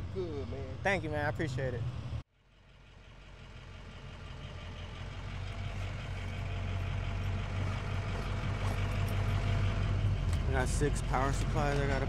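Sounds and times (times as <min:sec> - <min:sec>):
engine idling: 0:00.0 - 0:12.0.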